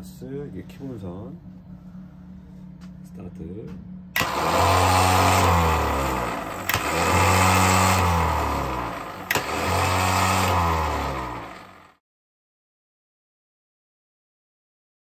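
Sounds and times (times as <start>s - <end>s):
starter motor spinning: 4.2s - 12.0s.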